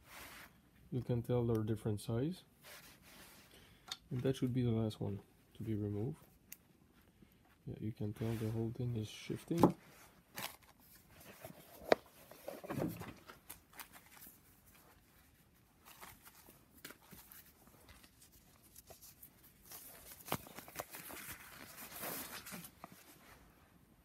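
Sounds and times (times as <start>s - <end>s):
rustling: 5.6s - 23.8s.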